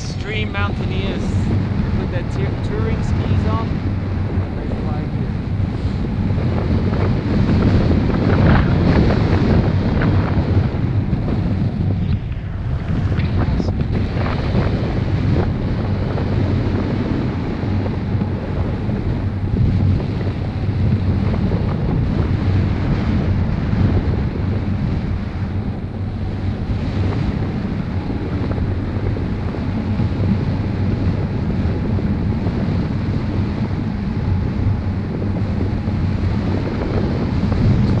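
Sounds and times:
wind buffeting microphone: 0.0 - 38.0.

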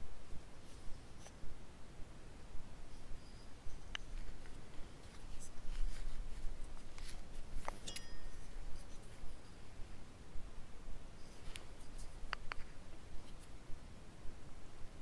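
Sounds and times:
light clicks and scrapes: 2.9 - 9.6, 11.2 - 13.6
brief metallic ring: 7.8 - 8.5.

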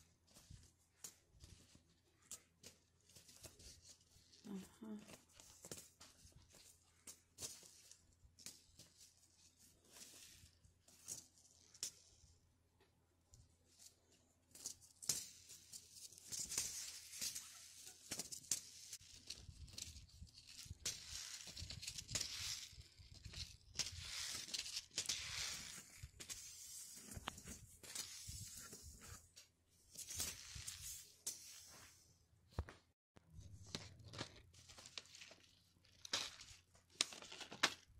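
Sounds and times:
paper packets rustling: 33.6 - 37.9.

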